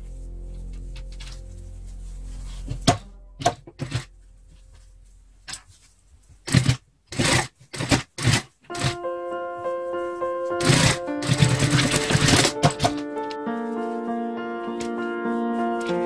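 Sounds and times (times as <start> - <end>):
background music: 0.0 - 5.4, 8.7 - 16.0.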